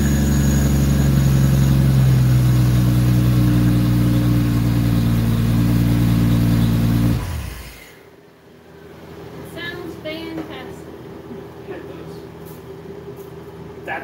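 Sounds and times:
car engine idling: 0.0s - 8.0s.

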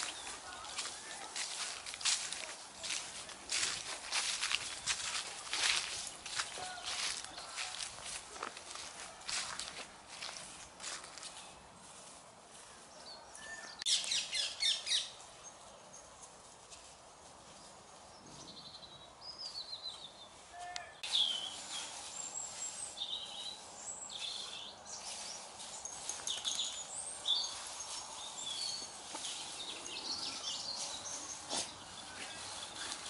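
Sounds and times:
small birds chirping: 0.0s - 11.6s, 12.6s - 16.2s, 17.6s - 33.0s
dogs rustling dry leaves: 0.0s - 13.0s, 20.3s - 33.0s.

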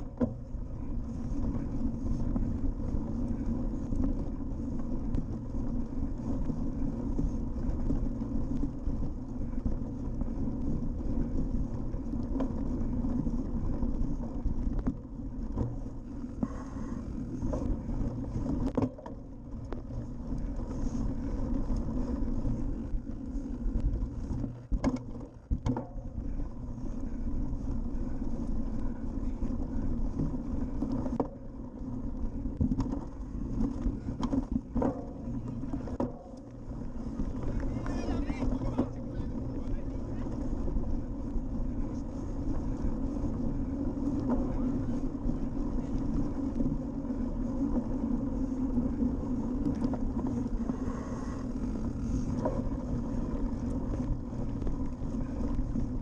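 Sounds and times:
bike knocks and rattles: 0.0s - 1.7s, 17.3s - 20.8s, 23.9s - 26.3s, 32.4s - 36.6s
bike tyres rumbling over grass: 0.0s - 56.0s.

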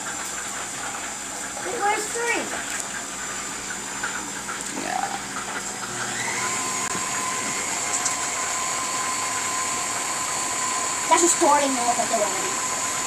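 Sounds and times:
stand mixer running: 0.0s - 13.0s
motor whine: 4.6s - 13.0s.

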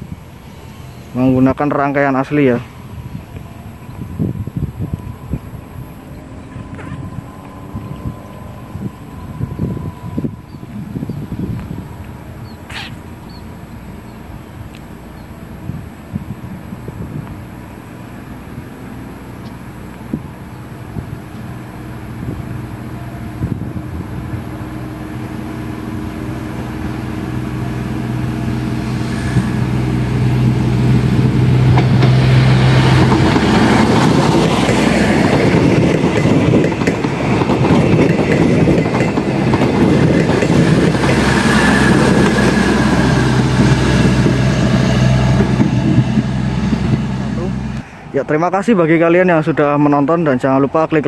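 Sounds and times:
train engine hum: 0.0s - 51.0s
train wheels clattering: 28.9s - 47.8s.

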